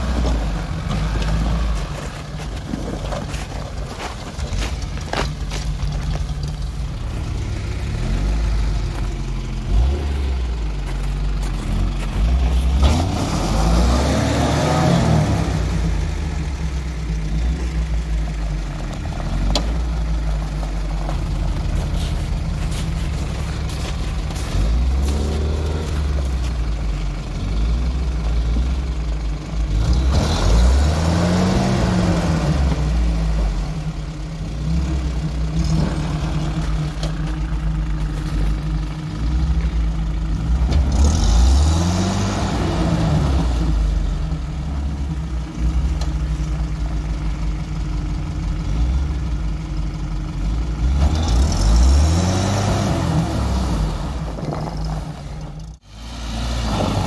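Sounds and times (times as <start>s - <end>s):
engine revving under load: 9.6s - 10.7s, 11.5s - 16.7s, 29.7s - 33.8s, 40.4s - 44.4s, 50.7s - 55.2s, 55.8s - 57.0s.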